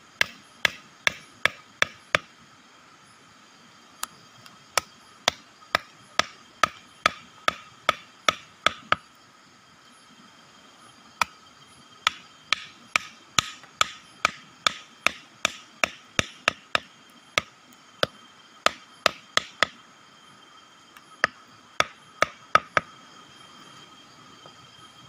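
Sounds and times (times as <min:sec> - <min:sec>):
wooden stake hammered into ground: 0:00.2 - 0:02.3, 0:04.8 - 0:09.1, 0:12.0 - 0:19.8, 0:21.2 - 0:22.9.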